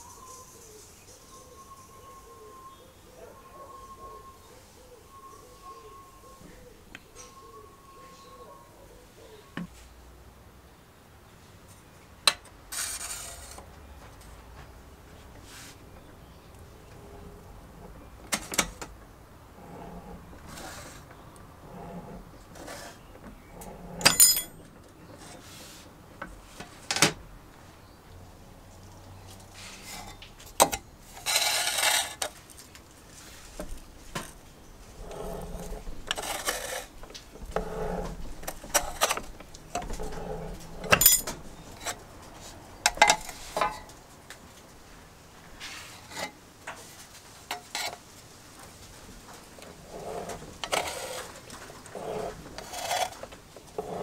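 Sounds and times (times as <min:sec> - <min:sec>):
sheet metal scraping: 0:19.5 - 0:24.6, 0:34.8 - 0:42.0, 0:49.7 - 0:54.0
metal shear snapping: 0:24.0 - 0:24.5.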